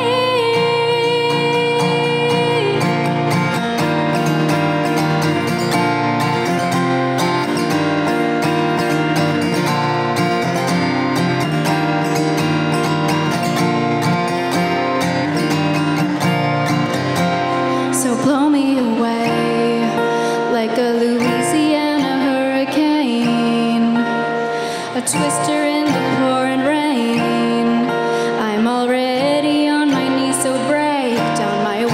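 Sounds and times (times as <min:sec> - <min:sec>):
woman singing: 0:00.0 - 0:04.2, 0:17.8 - 0:31.9
acoustic guitar strumming: 0:00.0 - 0:31.9.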